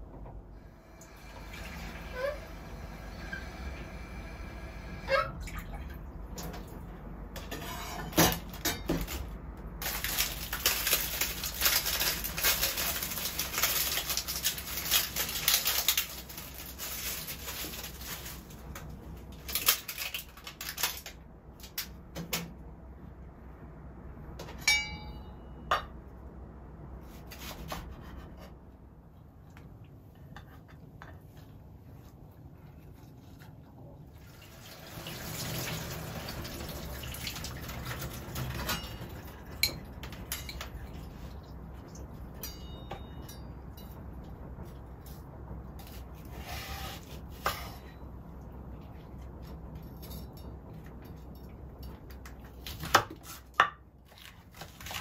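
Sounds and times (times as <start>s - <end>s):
rattling and splashing: 34.1s - 42.5s.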